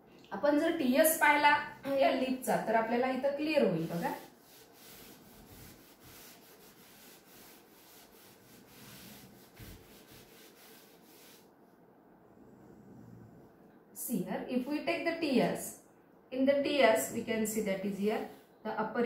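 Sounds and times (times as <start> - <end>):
duster scrubbing chalkboard: 1.4 - 11.5.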